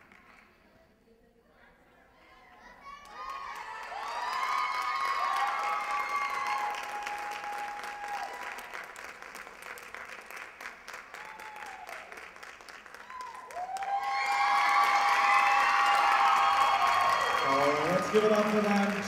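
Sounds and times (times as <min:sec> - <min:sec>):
audience clapping: 0:00.0 - 0:00.6, 0:02.8 - 0:19.0
audience cheering: 0:03.0 - 0:08.8, 0:11.1 - 0:12.2, 0:12.9 - 0:19.0.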